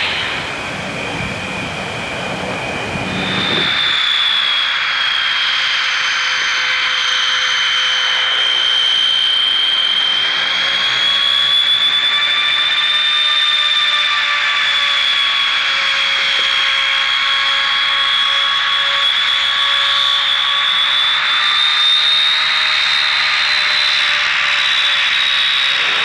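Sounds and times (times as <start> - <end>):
low rumble: 0.0 - 3.9
turboprop engines whining: 0.0 - 26.0.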